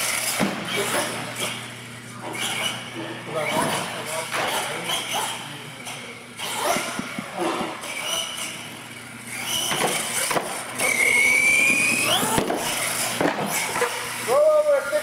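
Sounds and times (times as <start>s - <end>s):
electric motor whining: 7.8s - 14.4s.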